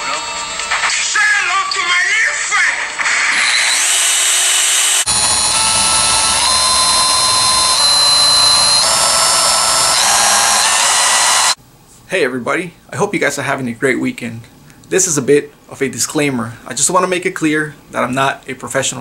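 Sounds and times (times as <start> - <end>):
die grinder motor whine: 3.0 - 11.6.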